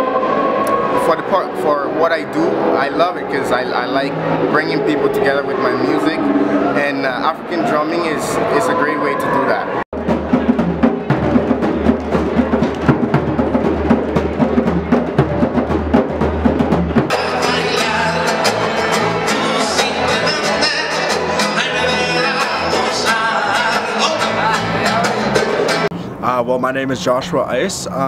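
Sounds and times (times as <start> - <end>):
hand drumming on djembes: 10.0 - 25.9
music with singing: 17.1 - 25.9.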